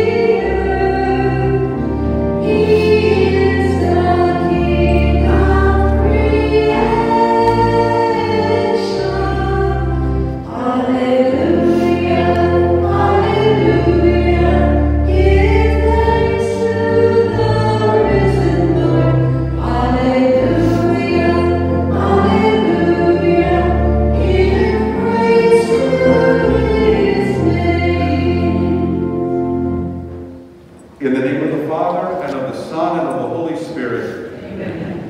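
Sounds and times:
hymn sung with accompaniment: 0:00.0 - 0:30.4.

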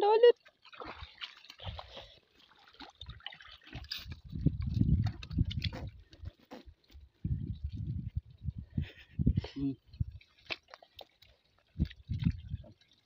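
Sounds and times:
water dripping from a net: 0:00.0 - 0:09.0, 0:09.9 - 0:13.0
dull low bumps: 0:04.0 - 0:10.2.

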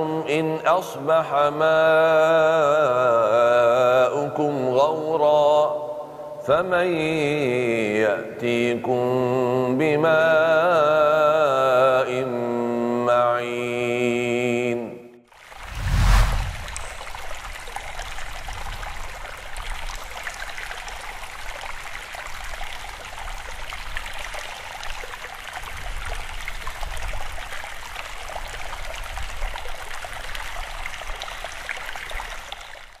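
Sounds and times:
low rumble: 0:15.6 - 0:17.2.

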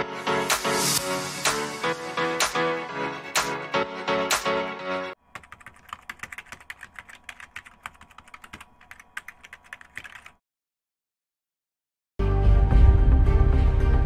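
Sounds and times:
electronic music: 0:00.0 - 0:05.1
rapid computer keyboard typing: 0:05.2 - 0:10.4.

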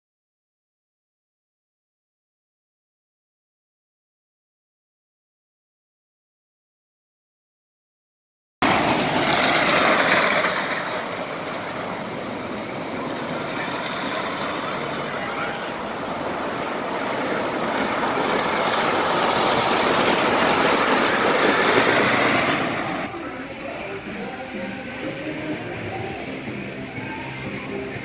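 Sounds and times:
roller coaster rumbling on track: 0:08.6 - 0:28.0.

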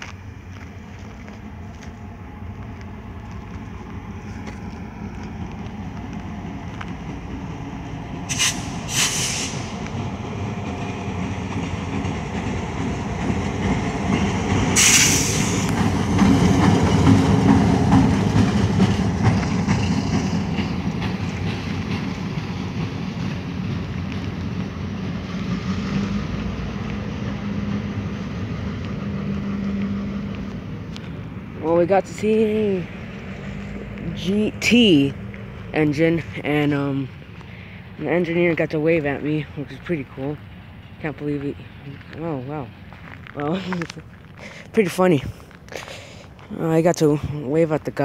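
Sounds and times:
diesel locomotive engine rumble: 0:00.0 - 0:48.0
short hissing bursts: 0:08.3 - 0:09.7, 0:14.8 - 0:15.7.

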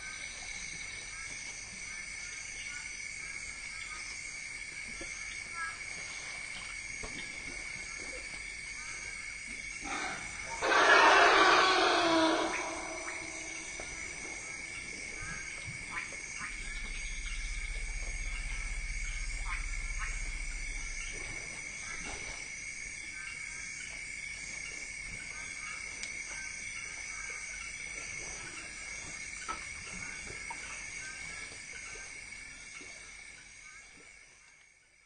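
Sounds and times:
insects chorus: 0:00.0 - 0:35.0
low elephant rumble: 0:09.8 - 0:22.8.

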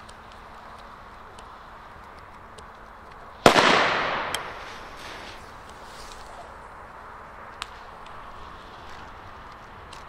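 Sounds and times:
small sharp crack: 0:00.0 - 0:06.4
firecracker bang: 0:03.4 - 0:06.5.

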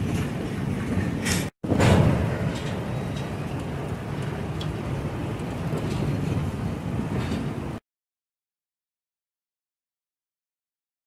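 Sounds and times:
train wheels rumbling on rail: 0:00.0 - 0:07.8.

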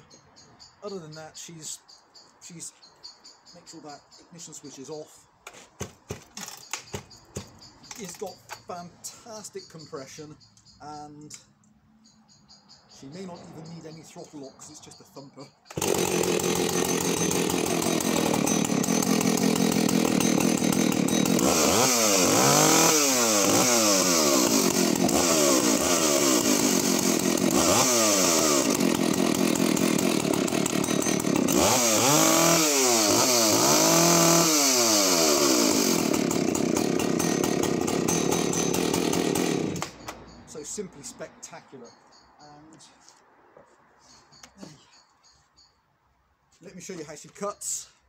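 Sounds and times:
chainsaw idling and revving: 0:15.7 - 0:40.2.

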